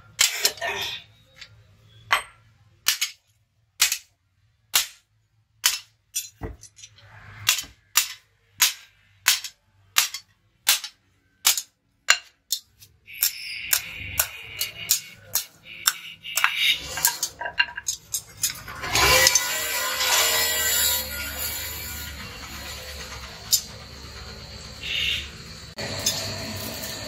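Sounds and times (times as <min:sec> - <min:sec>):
hammer striking metal on anvil: 0:13.1 - 0:18.0.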